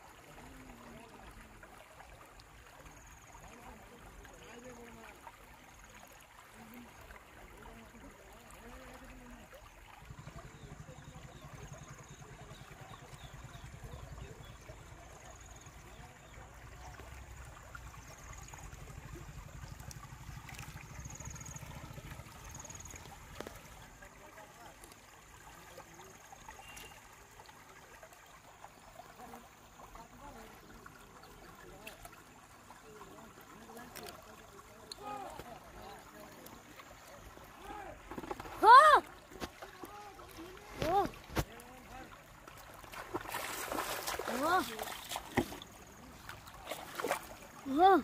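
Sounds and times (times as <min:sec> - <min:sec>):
river water trickling: 0:00.0 - 0:48.0
faint high chirps: 0:26.6 - 0:27.0.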